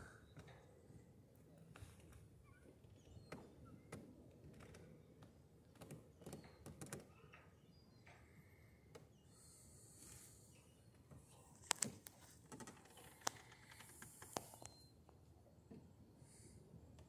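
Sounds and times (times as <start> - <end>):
faint clicks and knocks: 1.3 - 9.2, 10.9 - 15.9.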